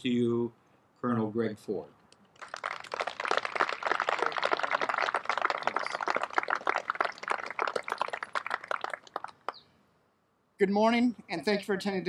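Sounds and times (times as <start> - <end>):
audience applauding: 2.3 - 9.6.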